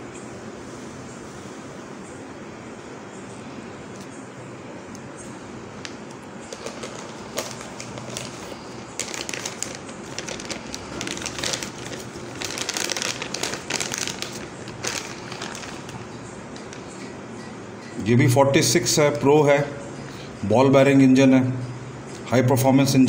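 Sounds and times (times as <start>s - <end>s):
plastic bag crinkling: 5.8s - 17.0s.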